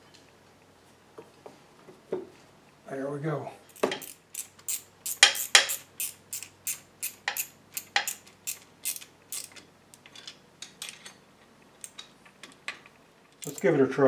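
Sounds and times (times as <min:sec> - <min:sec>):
socket ratchet clicking: 0:03.8 - 0:09.6.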